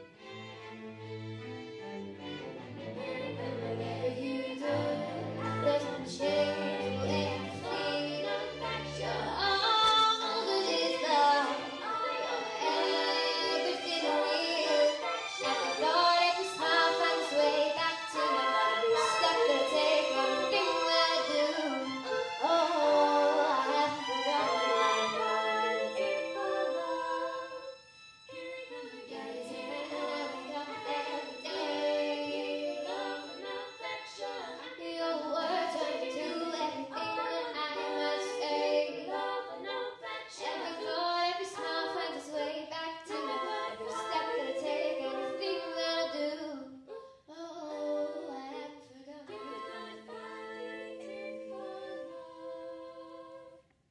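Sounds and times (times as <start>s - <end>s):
string ensemble: 0.0s - 46.5s, 49.3s - 53.5s
young singers singing: 2.8s - 53.6s.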